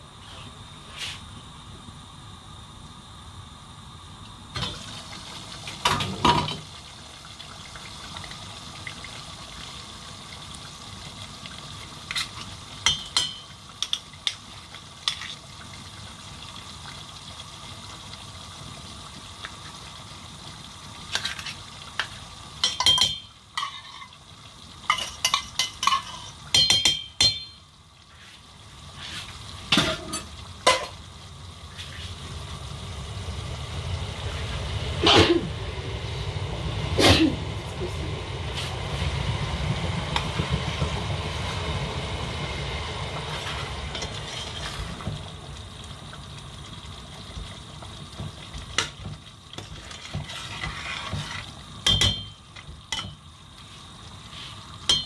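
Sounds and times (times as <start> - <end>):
food hissing in pot: 0.0 - 1.4, 28.0 - 30.2, 31.6 - 45.3, 49.6 - 51.8, 53.4 - 54.9.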